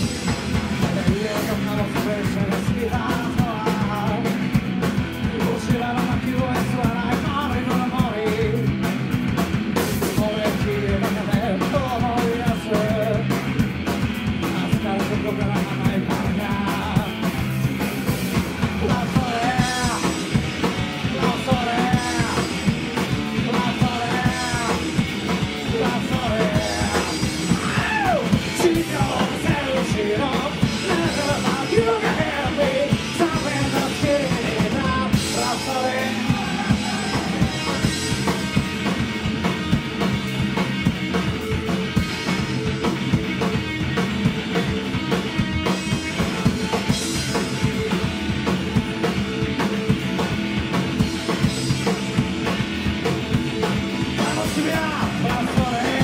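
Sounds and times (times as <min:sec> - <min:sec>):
rock band playing live: 0:00.0 - 0:56.0
person singing: 0:18.8 - 0:20.2, 0:23.4 - 0:25.0, 0:25.6 - 0:38.3, 0:54.1 - 0:56.0.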